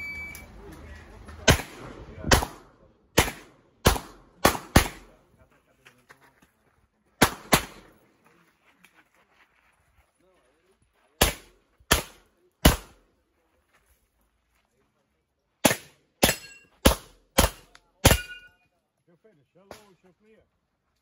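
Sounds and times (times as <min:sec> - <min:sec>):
brief ringing tone: 0:00.0 - 0:00.5
pistol shots: 0:01.4 - 0:05.2, 0:07.2 - 0:07.9, 0:11.2 - 0:13.0, 0:15.6 - 0:18.5.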